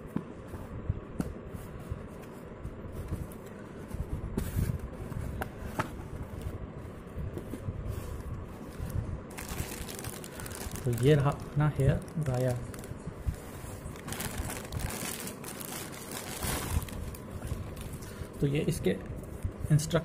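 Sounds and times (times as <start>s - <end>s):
cardboard scraping and rustling: 1.5s - 11.4s
plastic wrapping crinkling: 9.3s - 18.4s.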